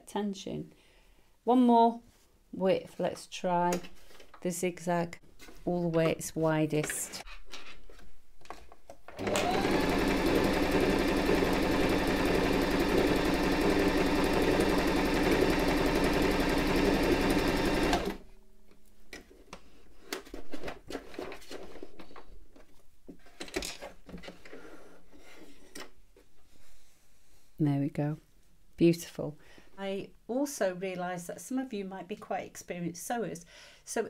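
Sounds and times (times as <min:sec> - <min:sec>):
sewing machine stitching: 0:09.1 - 0:18.2.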